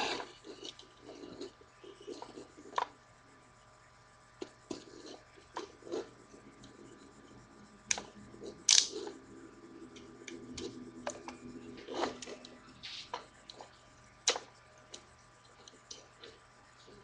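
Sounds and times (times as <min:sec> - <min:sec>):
plastic toy clicking and rattling: 0:08.7 - 0:08.9
sharp plastic clacks: 0:08.7 - 0:09.0.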